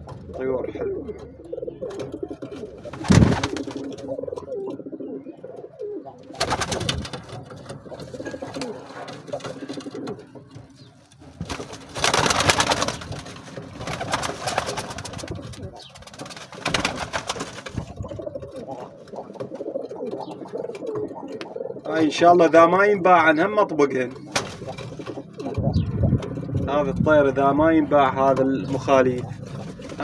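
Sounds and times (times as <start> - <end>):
pigeons cooing: 0.0 - 30.0
wings flapping: 1.9 - 4.1, 6.2 - 10.3, 11.1 - 21.4, 24.2 - 26.6, 29.2 - 30.0.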